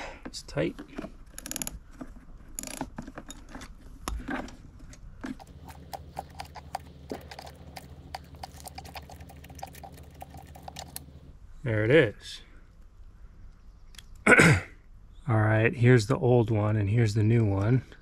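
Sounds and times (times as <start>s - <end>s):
ratchet wrench clicking: 1.3s - 1.8s, 2.6s - 2.8s.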